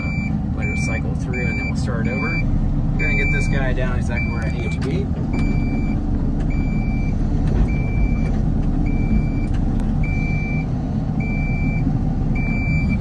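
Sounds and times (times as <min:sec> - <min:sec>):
high warning beeps: 0:00.0 - 0:08.3, 0:12.4 - 0:13.0
excavator diesel engine: 0:00.0 - 0:13.0.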